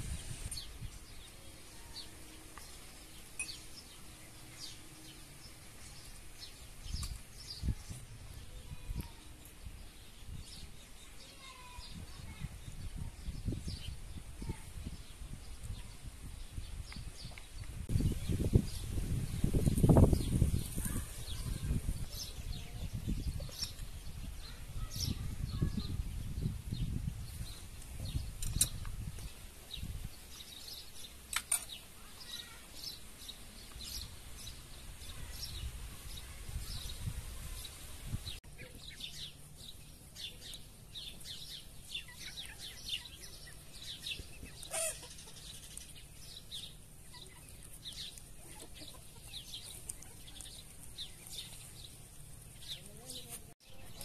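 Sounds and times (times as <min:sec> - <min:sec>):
wind rumble on microphone: 0:00.0 - 0:01.1, 0:11.8 - 0:30.2, 0:35.0 - 0:38.4
birds chirping and peeping: 0:00.0 - 0:54.0.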